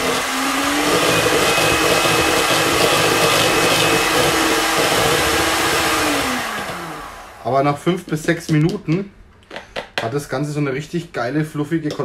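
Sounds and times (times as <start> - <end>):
electric hand mixer whining: 0.0 - 7.4.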